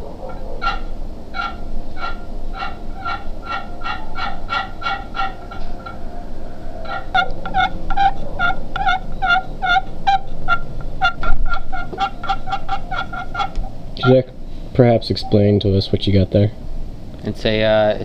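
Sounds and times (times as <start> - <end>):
turkey call yelps: 0.0 - 14.3
low bump: 0.0 - 17.2.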